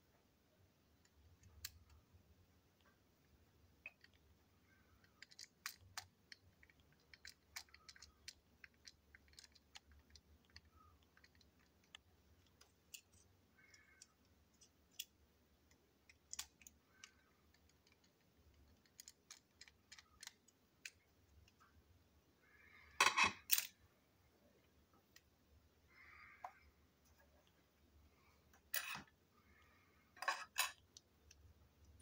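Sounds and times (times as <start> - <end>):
plastic parts clicking and tapping: 3.8 - 21.6.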